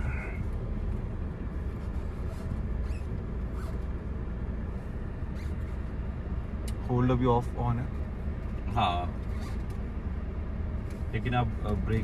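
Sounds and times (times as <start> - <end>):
vehicle cabin low rumble: 0.0 - 12.0
faint short squeaks: 1.8 - 3.9, 5.2 - 5.9, 9.2 - 9.8.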